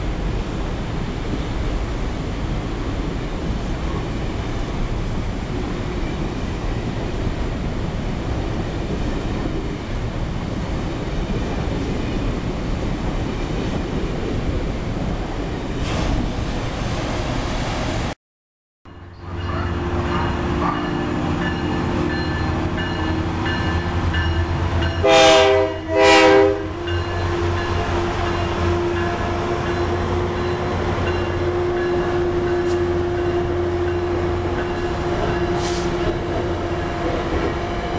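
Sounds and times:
diesel locomotive engine droning: 0:00.0 - 0:15.8, 0:18.9 - 0:37.9
train wheels rumbling on rail: 0:00.0 - 0:17.5, 0:19.0 - 0:37.9
train horn blasts: 0:24.4 - 0:37.9.

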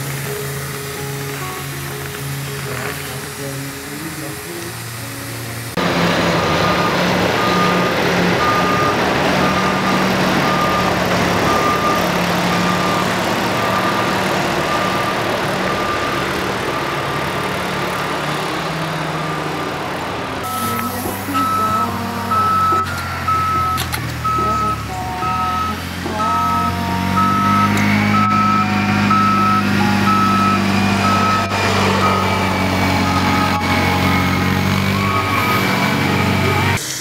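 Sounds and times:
loud rushing noise: 0:00.0 - 0:21.6
engine running: 0:00.0 - 0:37.0
reversing alarm beeping: 0:06.4 - 0:18.0, 0:18.6 - 0:36.8.

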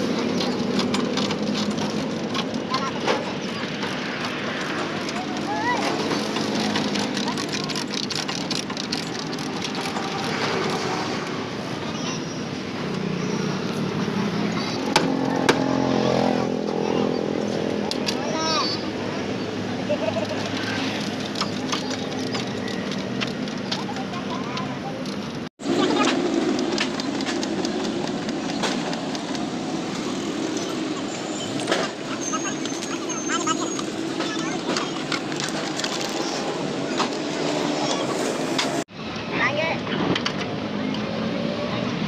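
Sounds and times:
street traffic: 0:00.0 - 0:42.0
voices: 0:00.0 - 0:42.0
chain hoist ratcheting clicks: 0:00.2 - 0:10.9.

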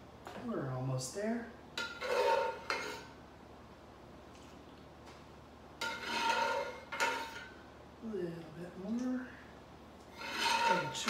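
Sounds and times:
metal ladle scraping skillet: 0:01.8 - 0:03.2, 0:05.8 - 0:07.6, 0:10.1 - 0:11.0.

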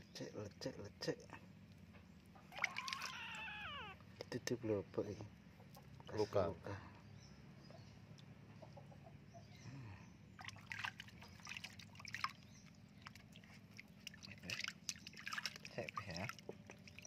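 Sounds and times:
water splashing in a washtub: 0:02.5 - 0:03.9, 0:10.4 - 0:17.0.

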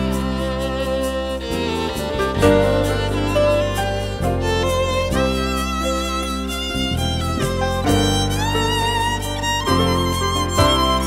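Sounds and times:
low instrumental accompaniment: 0:00.0 - 0:11.0
violin slow melody: 0:00.0 - 0:11.0.

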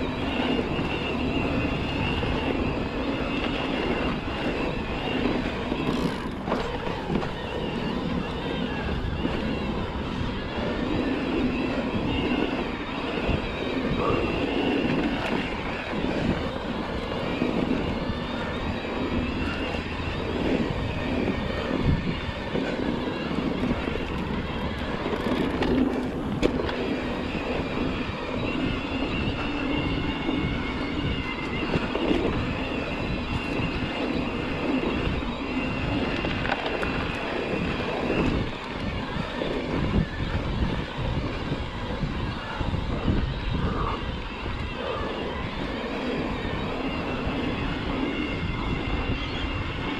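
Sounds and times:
electric motor whine: 0:00.0 - 0:49.9
bike rattles and knocks: 0:05.5 - 0:08.4, 0:21.3 - 0:26.8.

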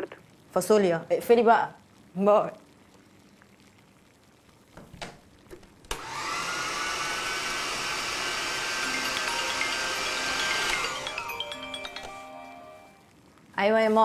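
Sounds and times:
food processor motor whine: 0:05.9 - 0:11.3.

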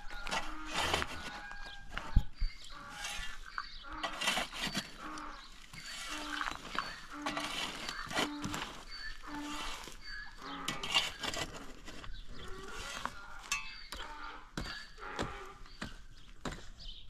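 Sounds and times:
pickaxe and shovel striking ground: 0:06.5 - 0:09.9, 0:10.5 - 0:12.0, 0:12.9 - 0:17.0.

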